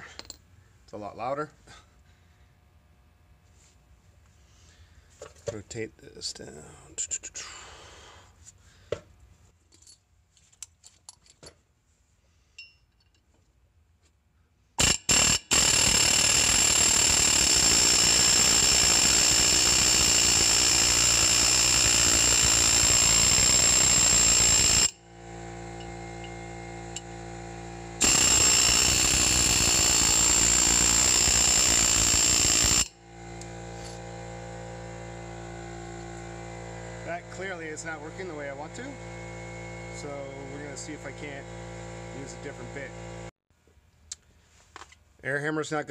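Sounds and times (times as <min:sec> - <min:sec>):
air hammer hammering metal: 0:14.8 - 0:33.0
high ringing tone: 0:14.8 - 0:34.2
steady low hum: 0:21.9 - 0:43.3.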